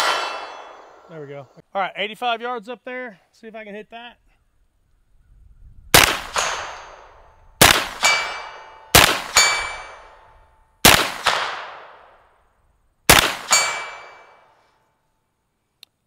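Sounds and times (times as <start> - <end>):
gunshots: 0.0 - 1.3, 5.9 - 10.2, 10.8 - 12.1, 13.1 - 14.4
bullet clanging on steel plate: 6.3 - 7.3, 7.9 - 10.4, 13.4 - 14.5.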